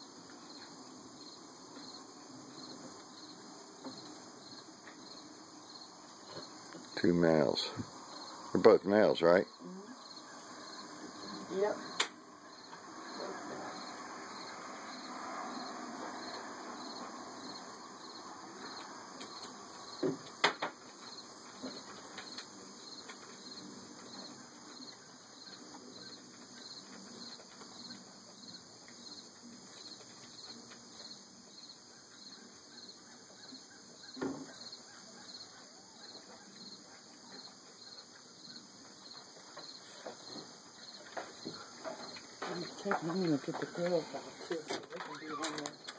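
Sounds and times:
insects chirping: 0:00.0 - 0:45.9
puppies scuffling on wooden deck: 0:18.7 - 0:31.2, 0:39.1 - 0:45.9.

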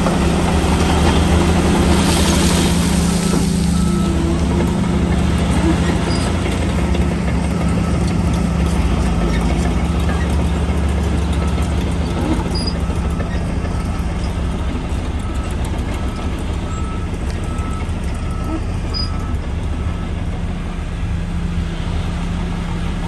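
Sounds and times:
bulldozer diesel engine droning: 0:00.0 - 0:23.0.

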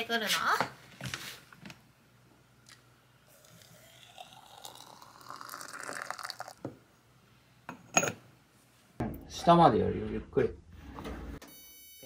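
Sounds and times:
water poured into teapot: 0:03.3 - 0:06.6.

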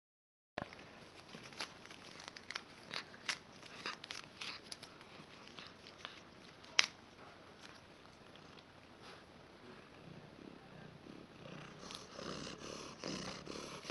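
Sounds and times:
small clicks and crackles: 0:00.6 - 0:08.7.

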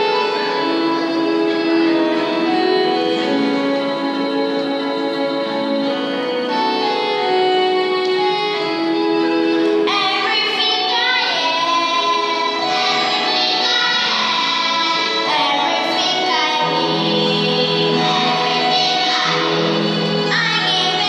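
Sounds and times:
backing music: 0:00.0 - 0:21.0
children singing: 0:09.8 - 0:21.0.

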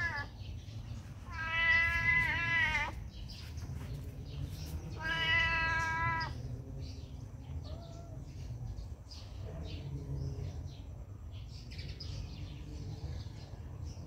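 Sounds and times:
cat meowing: 0:00.0 - 0:00.3, 0:01.2 - 0:03.0, 0:05.0 - 0:06.4.

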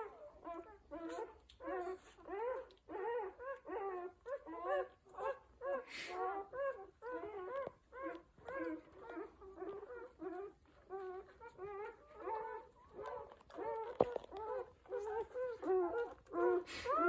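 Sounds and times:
puppies squeaking and whimpering: 0:06.6 - 0:17.0.

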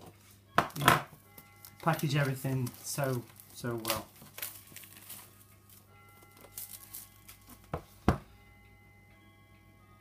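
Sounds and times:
faint background music: 0:00.0 - 0:10.0
handling rustle: 0:01.7 - 0:07.7
box knocking on stone countertop: 0:07.7 - 0:08.3.

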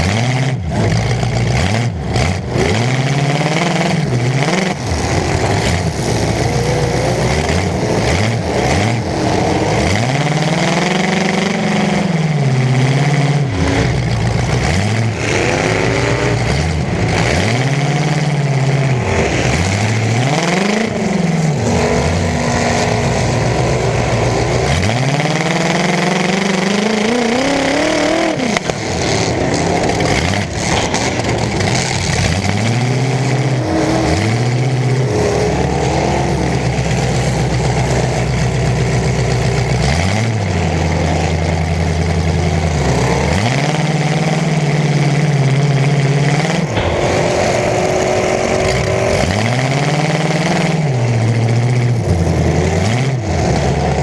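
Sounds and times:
car engine revving: 0:00.0 - 0:54.0
collision bangs: 0:46.7 - 0:51.0.

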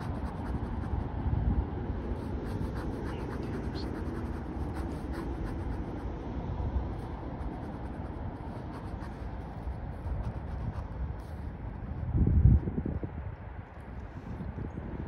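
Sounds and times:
pen scratching on paper: 0:00.0 - 0:01.1, 0:02.0 - 0:06.2, 0:07.0 - 0:11.5.

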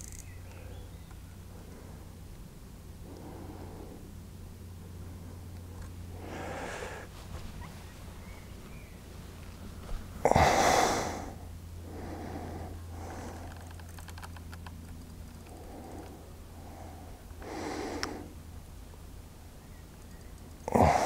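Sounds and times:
faint clicks: 0:00.0 - 0:01.2, 0:13.2 - 0:16.2, 0:17.3 - 0:18.2, 0:19.9 - 0:20.8
low steady hum: 0:00.0 - 0:21.0
person breathing close to microphone: 0:03.0 - 0:04.2, 0:06.1 - 0:07.2, 0:10.2 - 0:13.7, 0:15.5 - 0:18.4, 0:20.7 - 0:21.0.

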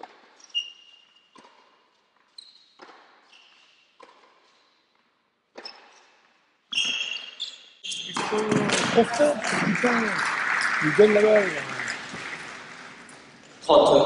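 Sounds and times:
tennis ball hit and bouncing: 0:00.0 - 0:00.4, 0:01.3 - 0:03.4, 0:04.0 - 0:06.2, 0:08.0 - 0:09.3
shoes squeaking on court: 0:00.0 - 0:09.0.

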